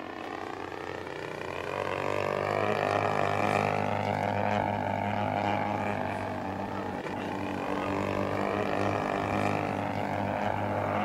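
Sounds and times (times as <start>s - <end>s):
model airplane engine and propeller: 0.0s - 11.0s.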